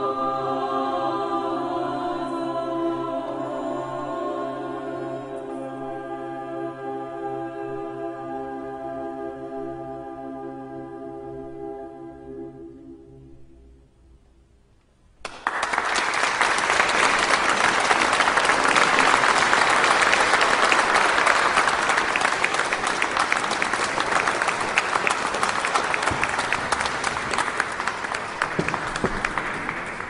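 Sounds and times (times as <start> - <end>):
audience applause: 15.2 - 30.0.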